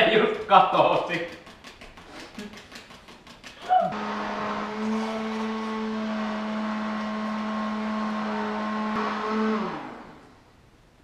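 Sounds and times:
stick blender motor humming: 3.6 - 10.5.

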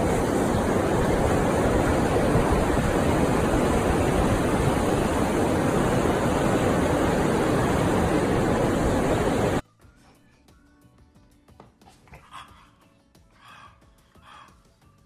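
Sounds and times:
ocean surf breaking on beach: 0.0 - 9.6
wind on microphone: 0.0 - 9.6.

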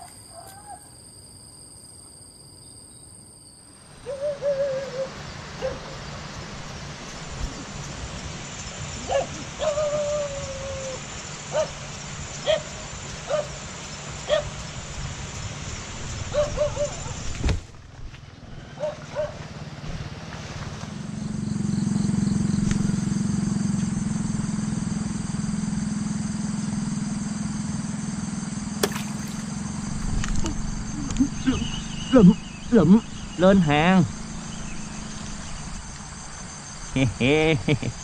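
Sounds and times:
steady low hum: 0.0 - 18.6, 19.8 - 38.0
dog barking: 5.6 - 6.0, 9.0 - 9.8, 11.5 - 11.8, 12.4 - 12.7, 13.3 - 13.6, 14.3 - 14.6, 16.3 - 17.2, 18.8 - 19.4
sharp knock: 28.8 - 29.5.

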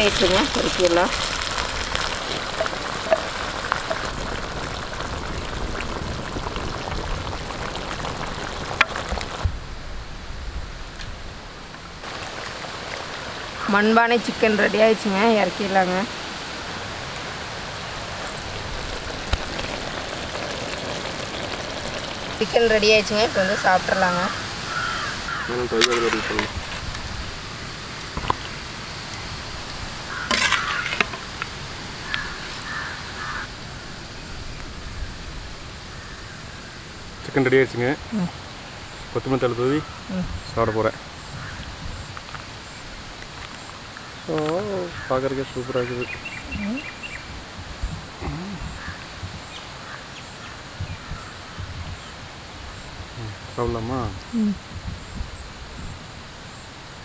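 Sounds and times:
outdoor rustling: 0.0 - 37.2
crows cawing: 24.2 - 25.7, 30.1 - 31.0, 32.0 - 33.5, 41.3 - 41.8, 48.8 - 49.1, 49.8 - 51.6
faint bird chirps: 44.0 - 52.2.

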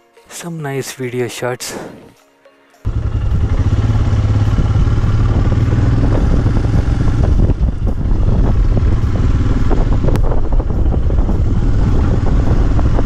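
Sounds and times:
motorcycle engine running: 2.9 - 13.0.

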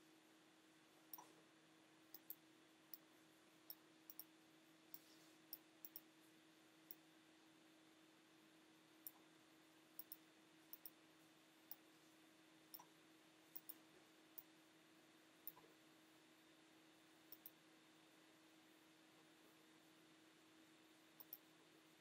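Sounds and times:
faint steady hum: 0.0 - 22.0
computer mouse clicks: 1.1 - 1.3, 2.1 - 3.0, 3.7 - 4.3, 4.9 - 6.1, 10.0 - 11.0, 12.7 - 12.9, 13.6 - 13.8, 15.4 - 15.7, 17.3 - 17.6, 21.2 - 21.5.

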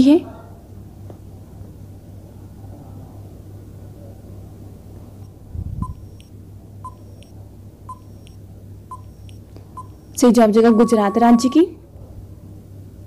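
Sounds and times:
faint low hum: 0.0 - 13.0
short countdown beeps: 5.8 - 7.3, 7.9 - 11.8.

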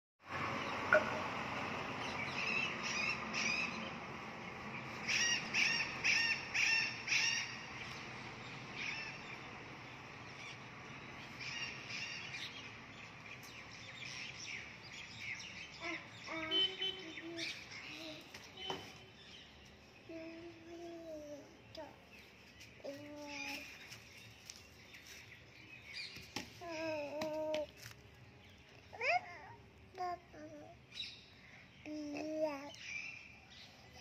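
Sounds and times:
truck engine rumble: 0.2 - 15.4
birds chirping: 0.5 - 29.4.

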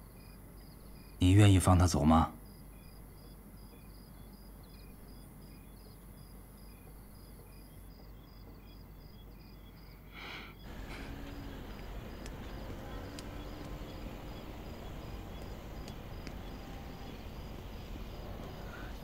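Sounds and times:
crickets chirping: 0.0 - 19.0
steady rain: 10.6 - 19.0.

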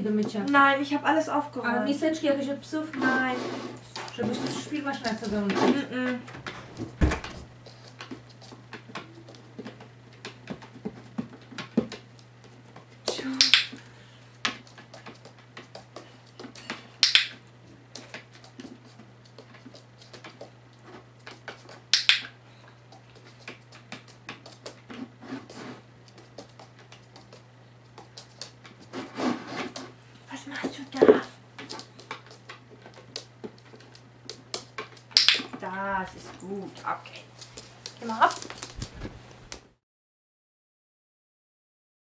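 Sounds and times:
dog paws tapping on a box: 30.6 - 39.7.

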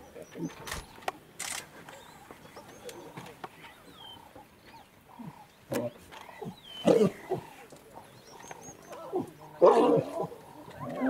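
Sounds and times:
lions calling: 3.8 - 11.0.

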